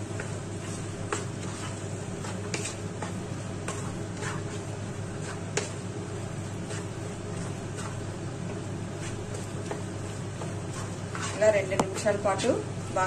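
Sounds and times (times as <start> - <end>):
steady background hum: 0.0 - 13.0
spatula clicking and scraping pan: 0.1 - 12.2.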